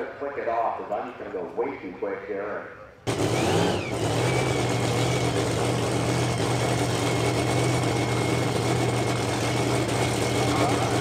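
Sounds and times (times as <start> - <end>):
engine idling with low hum: 3.1 - 11.0.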